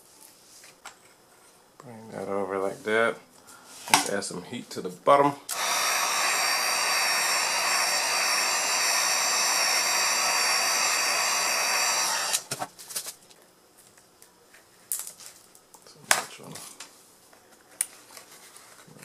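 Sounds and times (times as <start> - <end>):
heat gun blowing: 5.5 - 12.5.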